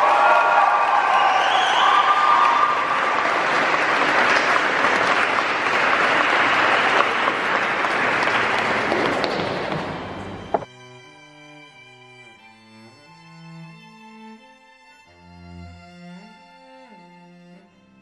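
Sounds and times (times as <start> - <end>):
crowd applauding: 0.0 - 10.6.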